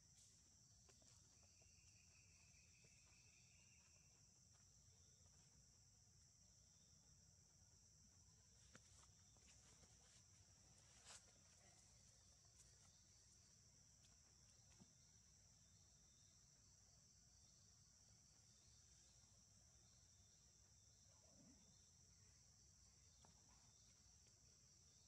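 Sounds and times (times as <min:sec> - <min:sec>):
high-pitched insect drone: 0:01.3 - 0:05.5.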